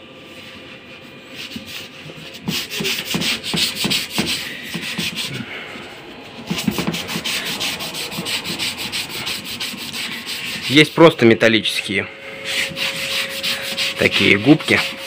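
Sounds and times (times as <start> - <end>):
sponge scrubbing glass door: 0.9 - 5.7, 6.4 - 11.2, 12.4 - 15.0.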